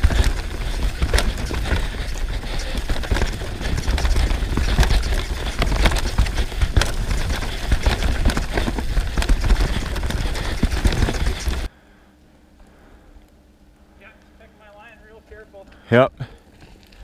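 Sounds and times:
bike clattering over rocks: 0.0 - 11.7.

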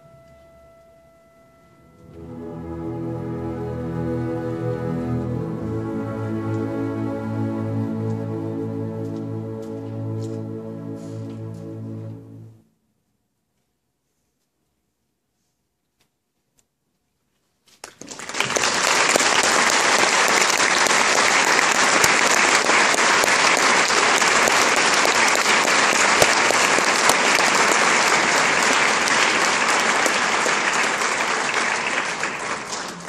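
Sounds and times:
audience applause: 17.8 - 33.0.

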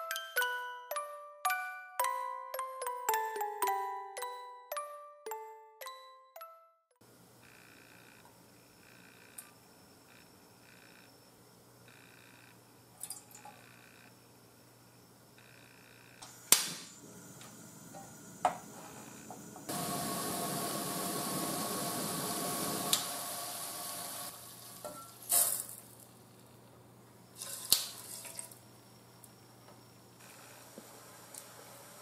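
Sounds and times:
liquid boiling in saucepan: 19.7 - 26.0.

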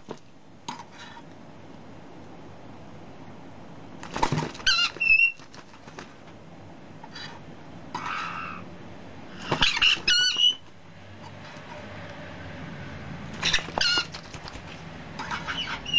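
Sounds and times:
baby parrots squeaky chirps: 4.6 - 5.4, 9.4 - 10.6, 13.4 - 14.3, 15.3 - 15.9.

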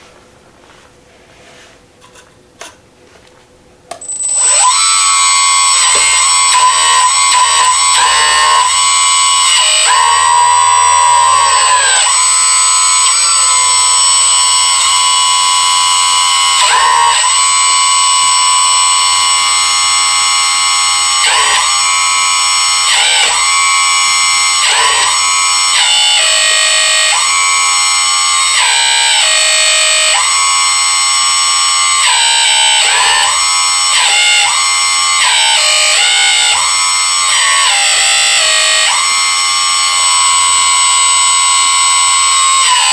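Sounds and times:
electronic music with bending synth: 4.1 - 29.6.

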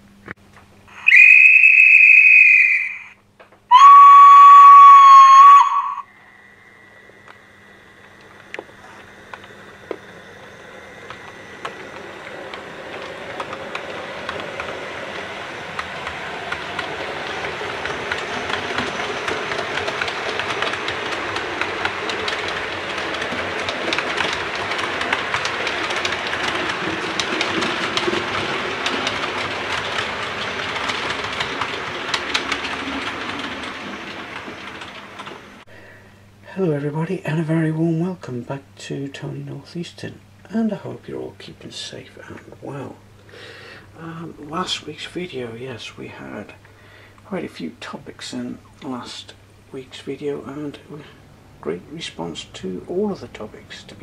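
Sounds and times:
short high whistle: 1.0 - 6.1
low steam whistle: 1.0 - 7.9
train running and rail clatter: 3.4 - 35.8, 36.5 - 54.0.

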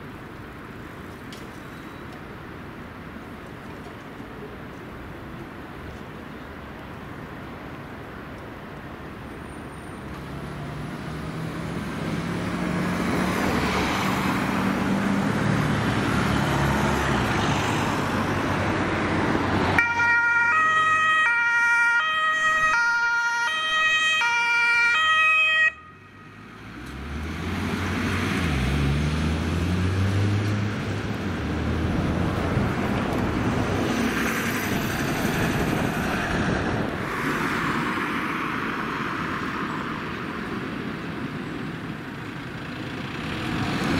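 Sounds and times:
vehicle engine accelerating: 10.2 - 17.2, 26.5 - 37.9, 42.9 - 43.9
ambulance two-tone siren: 19.8 - 26.3.

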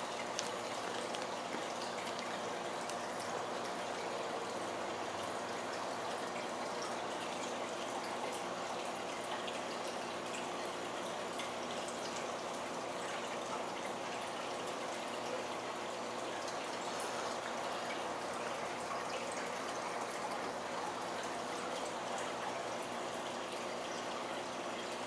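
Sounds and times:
aquarium water trickling and bubbling: 0.0 - 25.0
drip-like ticks: 0.1 - 4.1.

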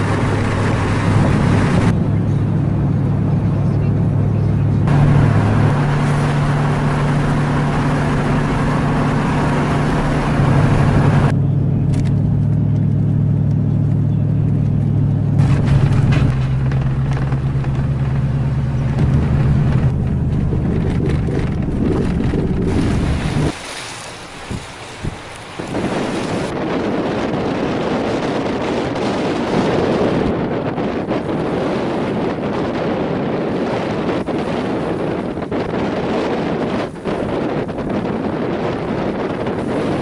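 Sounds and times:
truck engine hum: 0.0 - 26.7
tyre and road rush: 0.0 - 40.0
wind noise on microphone: 0.0 - 40.0.

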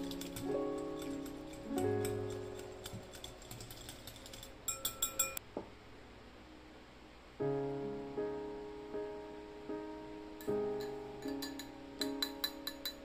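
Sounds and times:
whisk clinking on glass bowl: 0.0 - 5.4, 10.4 - 13.0
soft piano music: 0.0 - 6.2, 7.3 - 13.0.

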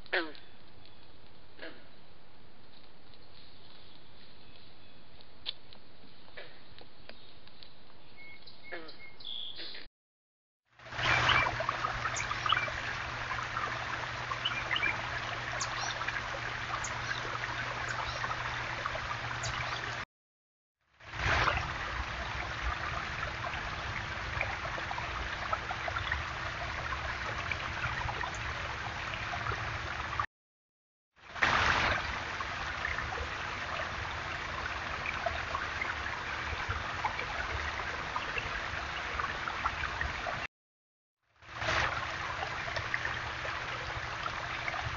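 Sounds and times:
water trickling down stone waterfall: 10.8 - 20.0, 21.0 - 30.3, 31.2 - 40.5, 41.5 - 44.9.

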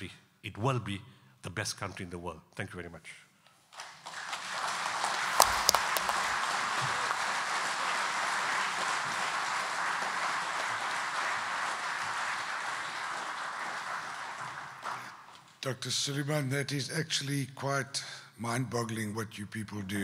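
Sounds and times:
audience applauding: 3.7 - 15.6.

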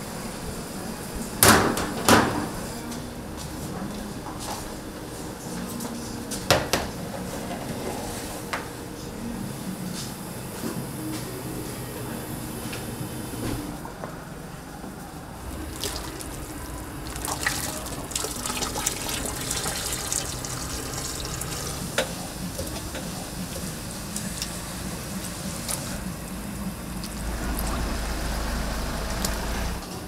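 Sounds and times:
water running and splashing: 15.5 - 21.9
low hum: 26.0 - 30.0.

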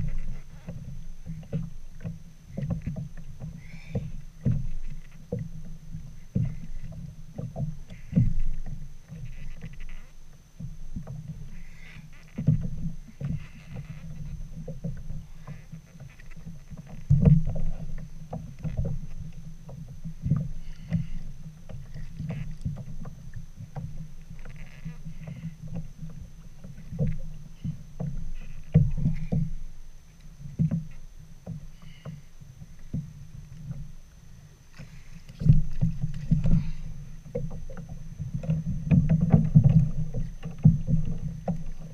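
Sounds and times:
bumps and thuds on hull: 0.0 - 10.0, 10.6 - 29.8, 30.4 - 33.9, 34.7 - 41.9
small waves lapping against kayak hull: 0.0 - 41.9.

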